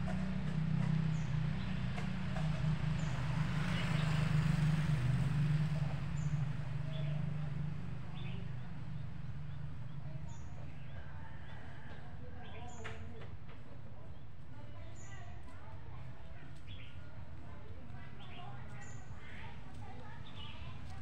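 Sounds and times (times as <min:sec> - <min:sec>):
motor engine humming: 0:00.0 - 0:10.0.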